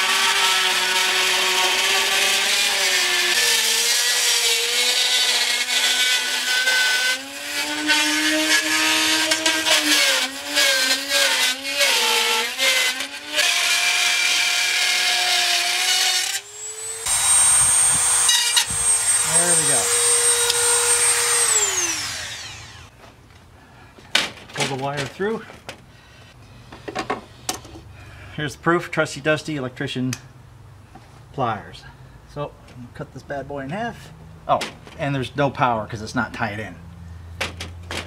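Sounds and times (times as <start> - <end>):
rotary tool high whine cutting: 0.0 - 22.9.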